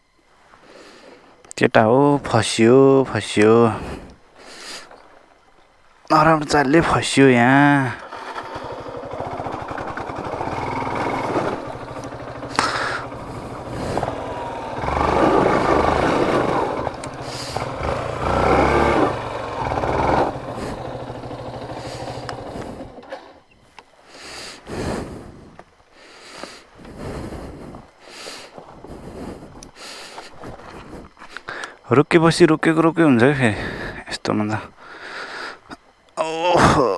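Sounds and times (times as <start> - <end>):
motorcycle engine revving hard: 8.0 - 23.3.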